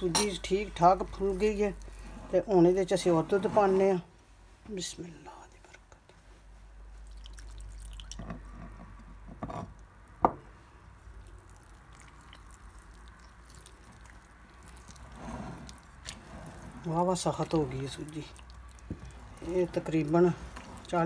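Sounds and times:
batter squishing while stirred: 0.0 - 4.1, 10.8 - 21.0
milk pouring into batter: 7.0 - 8.2, 10.9 - 21.0.

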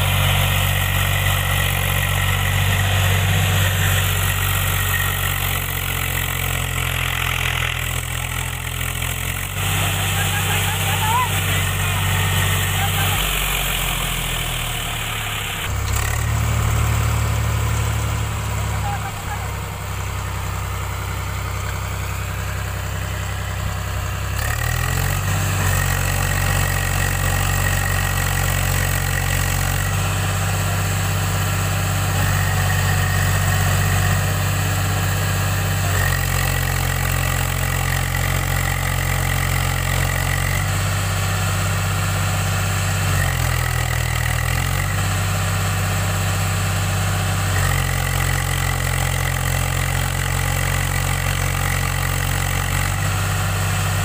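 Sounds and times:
high engine whine: 0.0 - 37.9
tractor diesel engine revving: 0.0 - 54.0.

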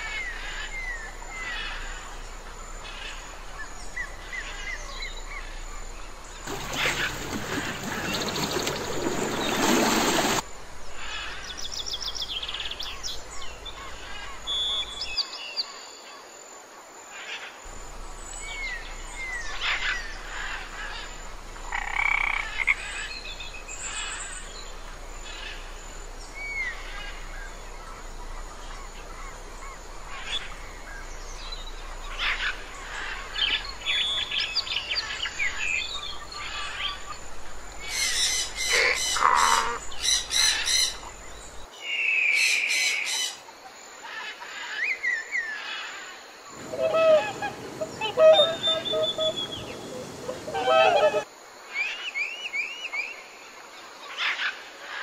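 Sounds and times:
steady background hiss: 0.0 - 55.0
frog-like croaks: 19.6 - 23.0, 38.6 - 39.9
bird chirps and whistled calls: 46.6 - 51.3.

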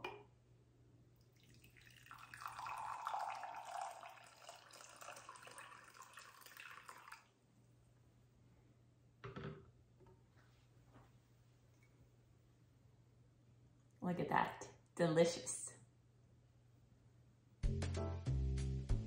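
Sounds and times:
water pouring into a mug: 1.2 - 7.3.

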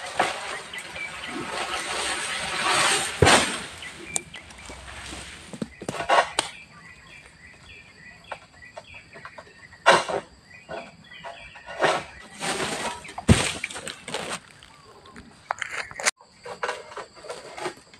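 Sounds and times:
rustling and scraping: 0.0 - 17.9
small birds chirping: 0.2 - 2.9, 3.6 - 13.3.

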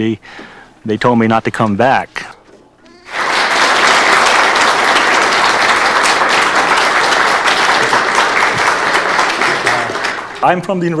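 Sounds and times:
audience applauding: 2.9 - 10.6.

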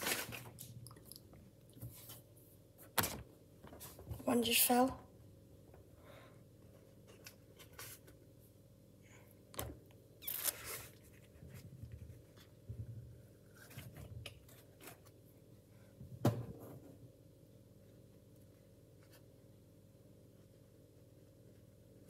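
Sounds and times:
plastic glove crinkling: 0.0 - 0.8
plastic rustle: 0.0 - 0.8.

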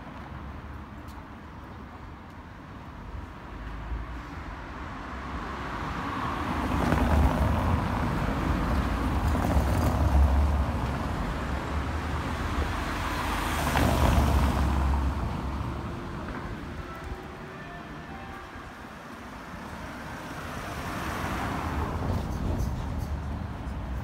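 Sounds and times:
vehicles driving past: 0.0 - 24.0
engine and tyre rumble: 0.1 - 17.2.

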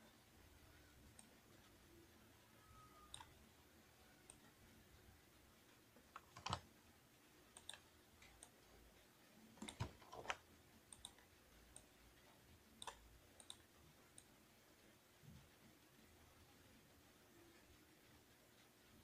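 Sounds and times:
mouse and keyboard clicks: 3.0 - 3.4, 6.1 - 6.7, 7.6 - 8.6, 9.6 - 11.9, 12.8 - 14.3.

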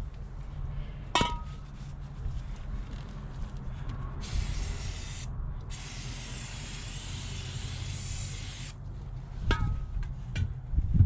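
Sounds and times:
aerosol can spraying: 4.2 - 8.8.

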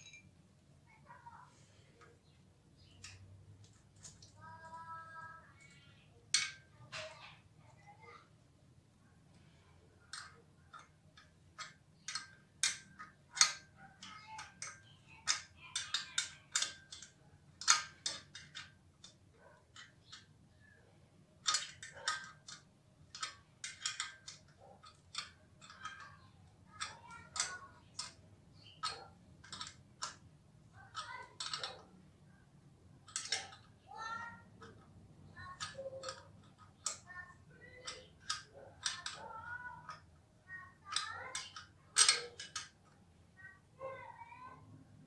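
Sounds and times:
wrench clicking on metal clamp: 40.9 - 43.0.

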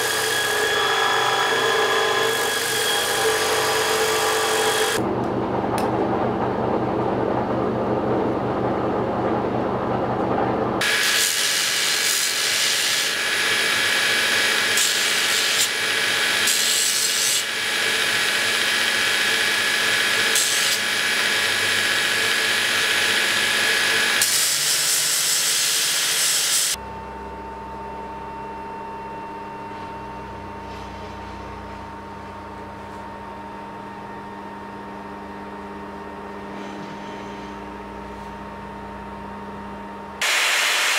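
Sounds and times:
belt grinder grinding steel: 0.0 - 5.0, 10.8 - 26.8
different machine running: 0.0 - 34.3
machine hum: 0.0 - 40.9
machine whine: 0.0 - 40.9.

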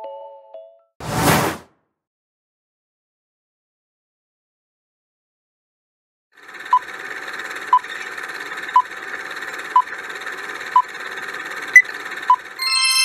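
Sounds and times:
bright ringing chime: 12.6 - 13.0.

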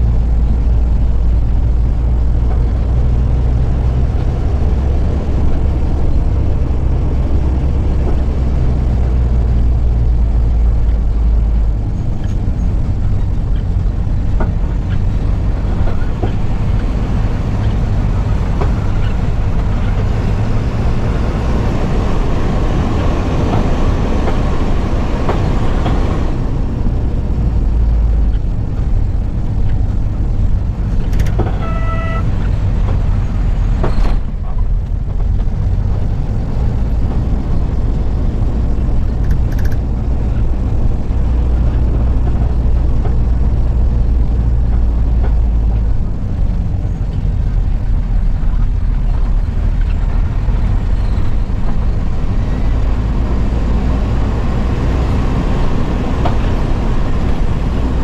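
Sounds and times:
vehicle engine and tyre noise: 0.0 - 58.0
short horn toot: 31.5 - 32.3.

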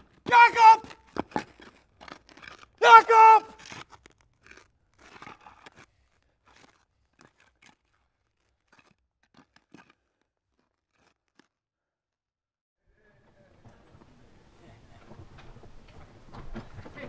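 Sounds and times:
faint crunching clicks: 0.0 - 11.5.

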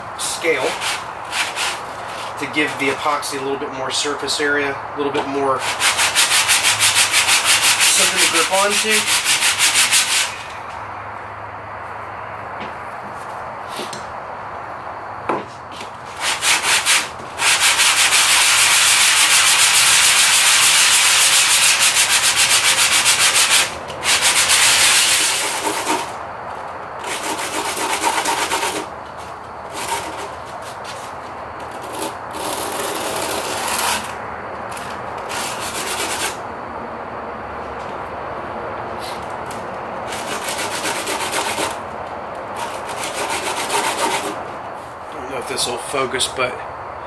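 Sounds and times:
wood rasping on sandpaper: 0.2 - 2.8, 5.6 - 10.5, 16.1 - 26.2, 27.0 - 28.9, 29.7 - 34.2, 35.3 - 36.4, 40.1 - 41.8, 42.6 - 44.4.

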